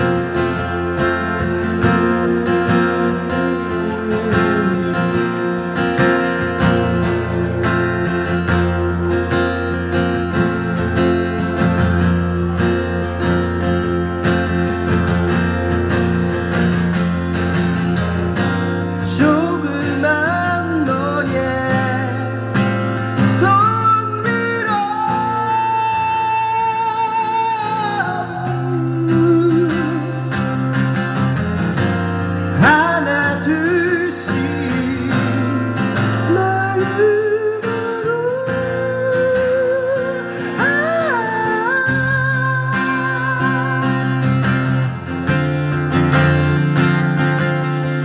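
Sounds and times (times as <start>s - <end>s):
man singing: 0.0s - 7.4s, 18.9s - 30.7s, 32.5s - 44.8s
strummed acoustic guitar: 0.0s - 48.0s.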